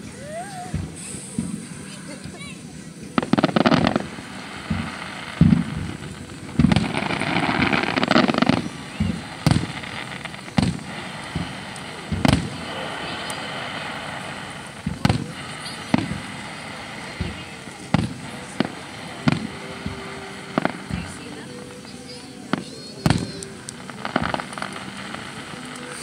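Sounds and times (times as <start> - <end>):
fireworks booming: 0.0 - 26.0
hissing crackle: 0.0 - 26.0.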